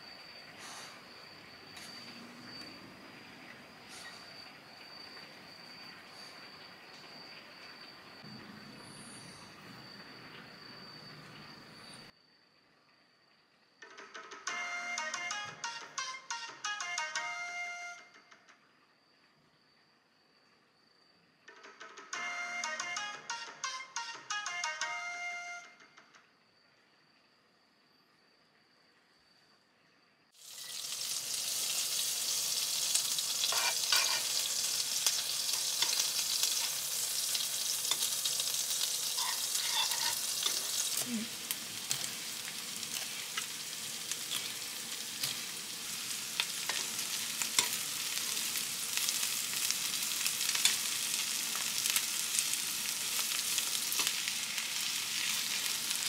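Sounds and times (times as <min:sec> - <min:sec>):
butter and garlic sizzling: 0:30.4 - 0:56.0
spatula scraping pan: 0:33.4 - 0:36.9, 0:38.7 - 0:41.0.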